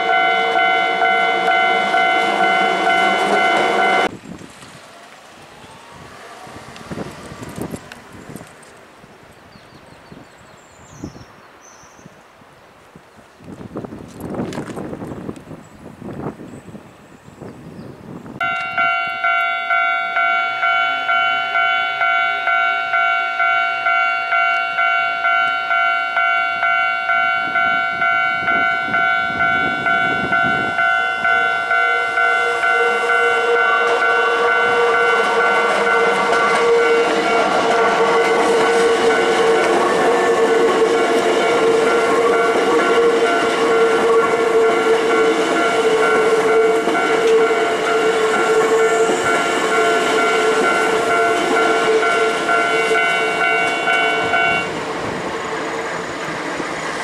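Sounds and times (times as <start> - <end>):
level crossing warning bell: 0.0 - 4.1, 18.4 - 54.7
steady tone from train: 0.0 - 4.4, 18.3 - 57.0
electric train passing: 0.0 - 11.6, 18.1 - 57.0.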